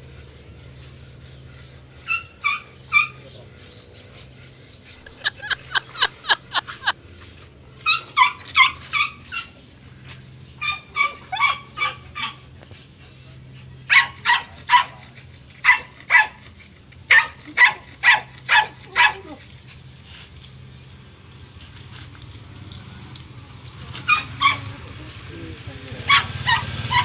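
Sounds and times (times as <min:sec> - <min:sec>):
dog yelping: 0:02.0 - 0:03.4, 0:07.8 - 0:09.7, 0:10.6 - 0:12.7, 0:13.8 - 0:16.4, 0:17.1 - 0:19.6, 0:23.8 - 0:24.9, 0:25.9 - 0:27.0.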